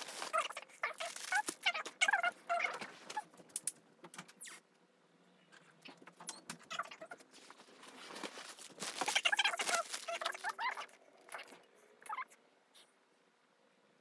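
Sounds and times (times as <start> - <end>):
packaging rustling and crinkling: 0.0 - 2.0, 7.3 - 10.7.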